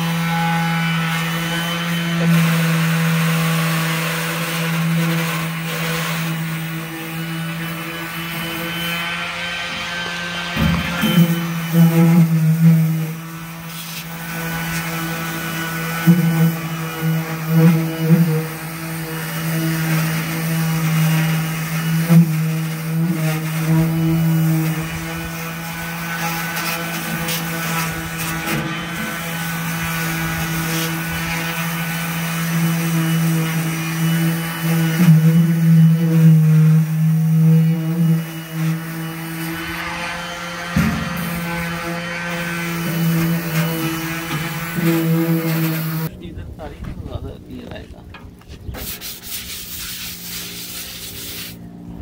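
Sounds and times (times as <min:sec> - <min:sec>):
orbital sander grinding metal: 0:00.0 - 0:51.9.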